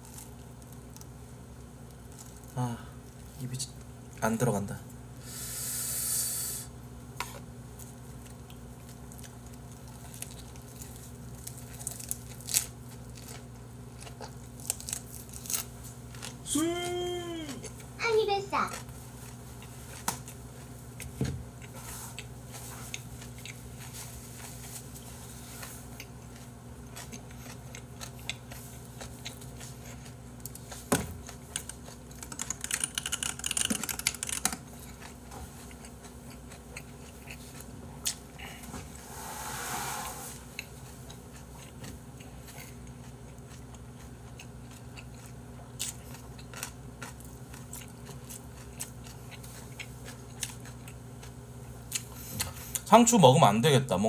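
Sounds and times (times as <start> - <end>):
breathy hiss: 5.2 - 6.8, 38.4 - 40.5
person chewing: 7.2 - 18.0, 18.6 - 38.7, 40.4 - 52.9.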